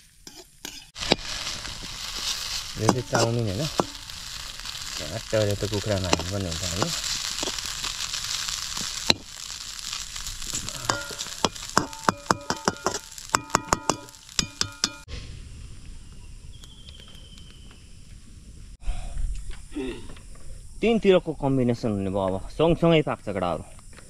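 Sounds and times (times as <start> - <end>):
food sizzling in a metal pan: 0.0 - 15.1
metal spatula striking a pan: 2.8 - 4.1, 10.7 - 15.1.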